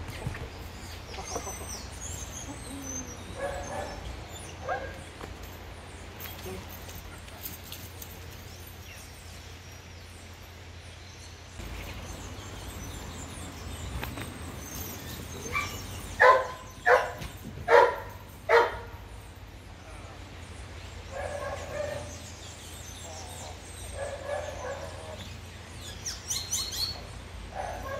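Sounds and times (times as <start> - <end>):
faint outdoor background: 0.0 - 27.9
dog barking: 3.4 - 5.0, 15.5 - 19.0, 21.1 - 22.1, 24.0 - 25.2, 27.5 - 27.9.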